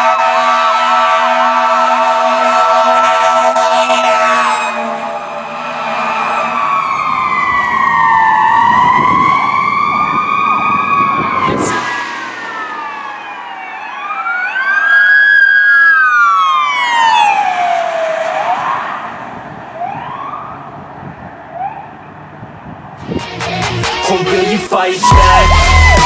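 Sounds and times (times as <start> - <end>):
fire engine siren wailing: 0.0 - 23.2, 25.0 - 26.0
passing truck siren sweeping: 0.0 - 24.3, 25.0 - 26.0.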